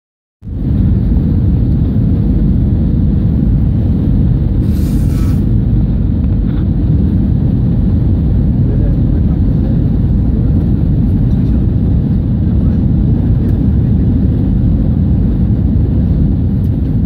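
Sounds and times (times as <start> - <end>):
aircraft cabin engine rumble: 0.4 - 17.0
brief hiss: 4.6 - 5.5.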